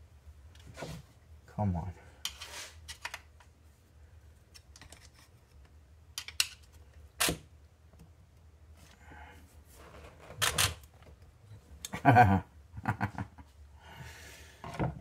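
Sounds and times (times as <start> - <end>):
plastic and metal parts clicking and rattling: 4.5 - 6.8.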